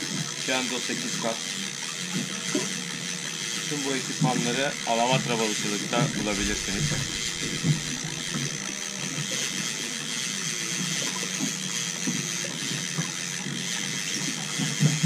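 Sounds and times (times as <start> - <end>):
fishing reel gears ticking: 0.0 - 15.0
steady low hum: 5.9 - 9.9.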